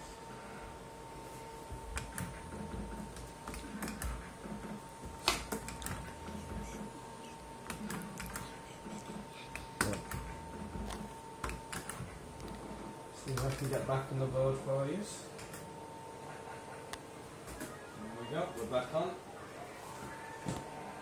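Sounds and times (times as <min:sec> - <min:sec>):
faint steady high tone: 0:17.6 - 0:20.4.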